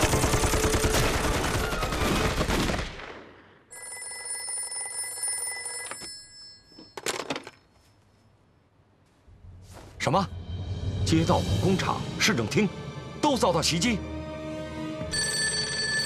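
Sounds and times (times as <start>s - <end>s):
rapid gunfire: 0.0s - 3.2s
telephone bell ringing: 3.7s - 7.8s, 15.1s - 16.0s.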